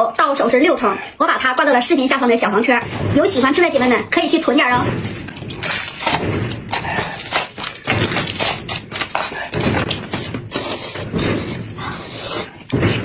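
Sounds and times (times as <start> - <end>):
noodle slurping and chewing: 5.1 - 13.0.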